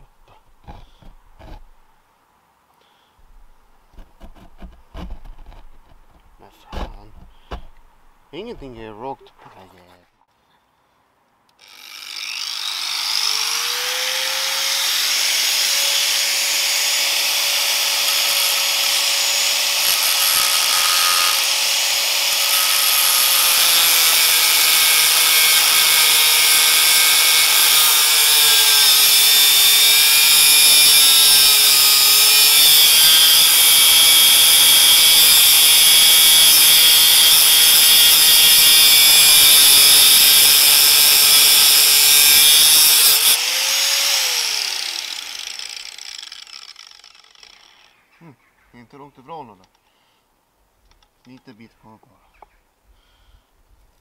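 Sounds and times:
angle grinder motor: 0:11.6 - 0:48.0.

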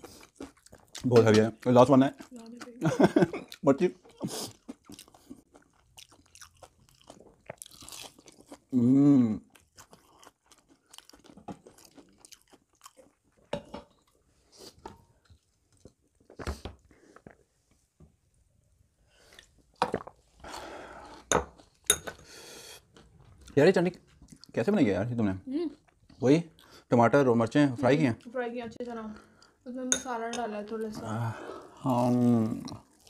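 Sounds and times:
crunching and chewing fried chicken: 0:00.0 - 0:08.8, 0:09.4 - 0:14.2, 0:31.8 - 0:33.0.

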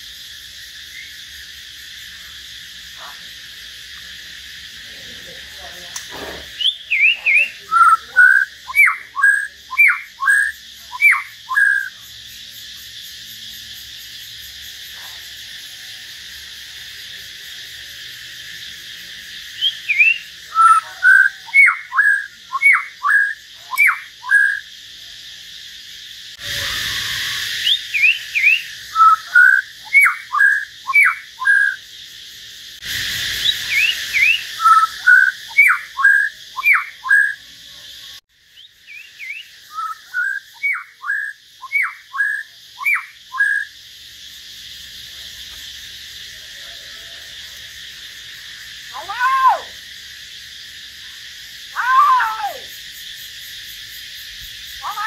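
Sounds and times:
steady high hiss: 0:00.0 - 0:55.0
songbird whistling: 0:06.2 - 0:12.0, 0:19.6 - 0:24.7, 0:26.4 - 0:31.8, 0:33.3 - 0:37.4, 0:38.5 - 0:43.8.

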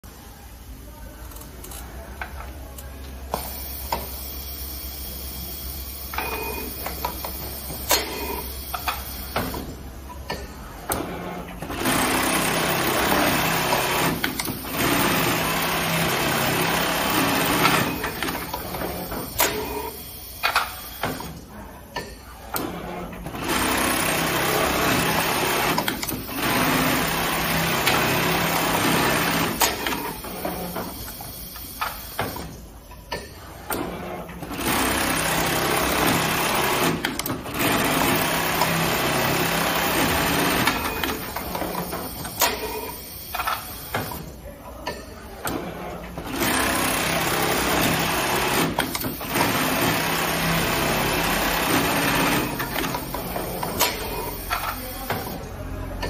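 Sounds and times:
sewing machine stitching: 0:11.2 - 0:20.0, 0:22.8 - 0:31.0, 0:34.0 - 0:42.7, 0:46.2 - 0:55.4.

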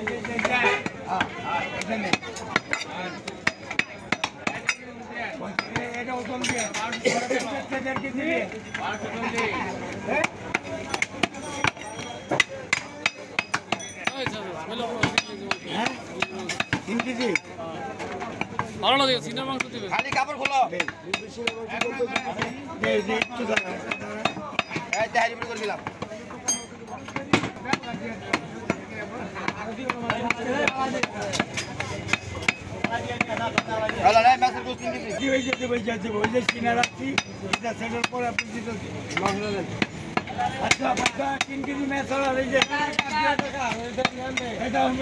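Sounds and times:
knife chopping meat on wood: 0:15.0 - 0:17.4.

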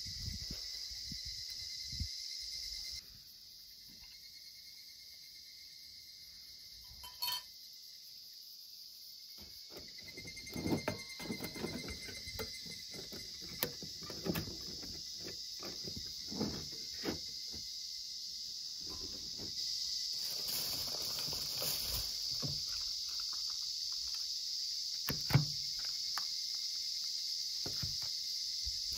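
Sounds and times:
insects droning: 0:00.0 - 0:28.9
metal clinks and knocks: 0:06.8 - 0:07.5, 0:09.4 - 0:17.3
rustling handling noise: 0:18.8 - 0:24.2.

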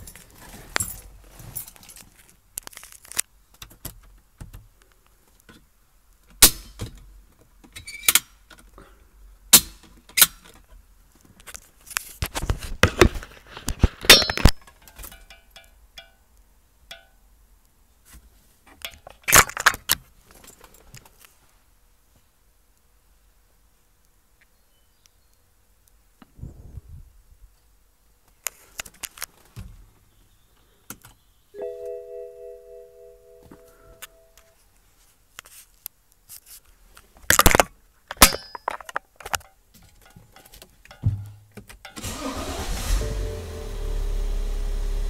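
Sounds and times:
handling noise on microphone: 0:00.0 - 0:04.2, 0:11.2 - 0:15.4.

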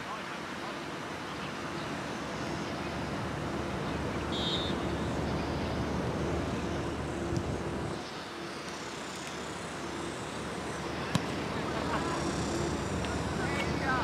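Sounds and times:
low outdoor rumble: 0:01.3 - 0:14.0
referee's whistle blast: 0:04.3 - 0:04.8.

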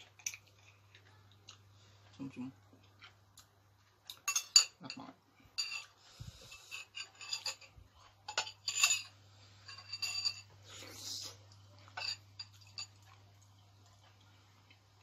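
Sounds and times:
spoon and bones clinking in bowl: 0:00.0 - 0:00.8, 0:04.1 - 0:10.6, 0:11.9 - 0:13.2.

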